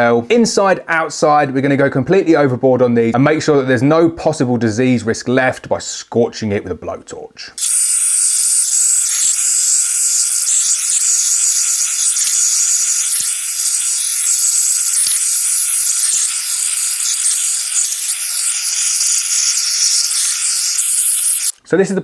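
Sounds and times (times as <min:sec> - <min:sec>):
blowtorch hissing: 0:07.6 - 0:21.6.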